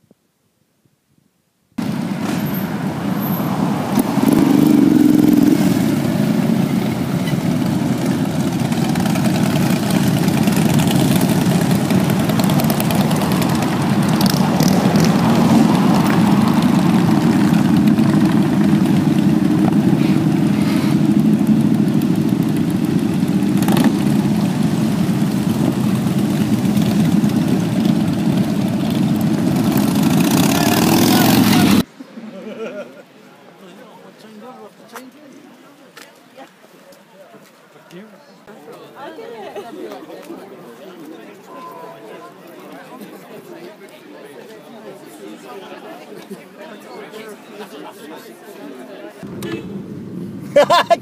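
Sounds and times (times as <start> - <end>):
motorcycles riding past: 1.8 - 31.9.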